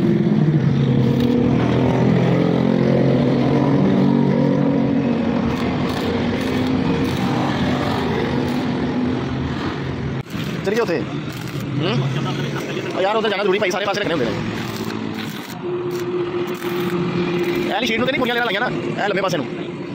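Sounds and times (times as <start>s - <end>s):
engine drone: 0.0s - 12.9s, 14.0s - 19.9s.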